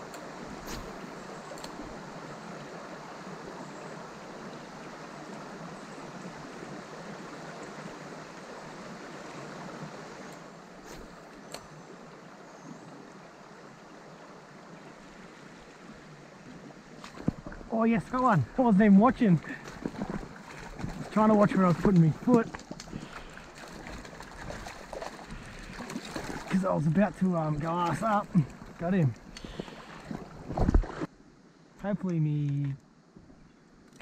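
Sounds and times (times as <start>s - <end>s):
water running over rocks: 0.0s - 31.1s.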